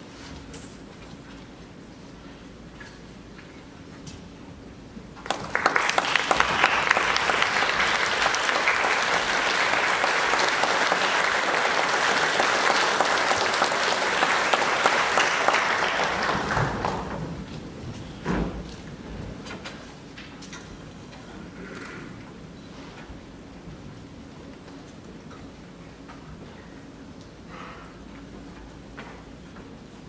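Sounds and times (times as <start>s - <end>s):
audience applauding: 5.2s - 17.4s.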